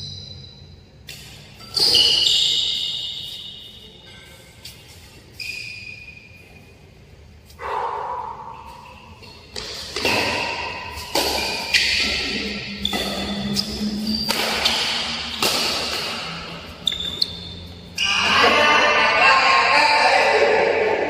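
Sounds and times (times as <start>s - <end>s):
shoes squeaking on court: 0.0s - 7.7s, 8.3s - 18.1s
rackets hitting shuttlecock: 1.0s - 3.6s, 8.2s - 17.5s.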